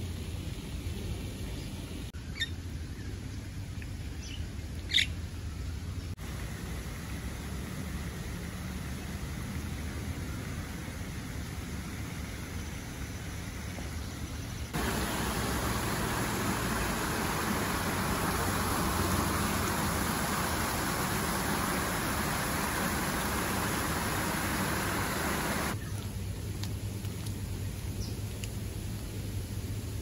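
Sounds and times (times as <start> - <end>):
faint outdoor background: 0.0 - 30.0
stream running over pebbles: 14.7 - 29.8.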